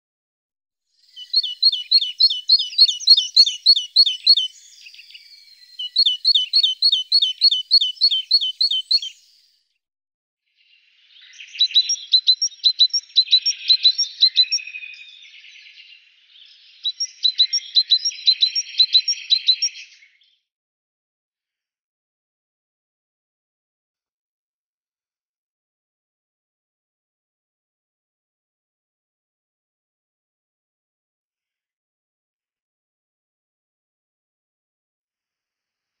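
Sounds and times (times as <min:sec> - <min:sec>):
songbird chirping: 0:01.0 - 0:09.5, 0:10.6 - 0:20.2.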